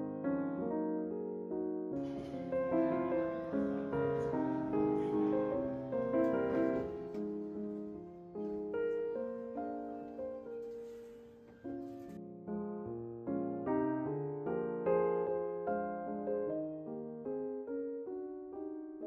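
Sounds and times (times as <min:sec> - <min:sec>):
gentle piano music: 0:00.0 - 0:19.0.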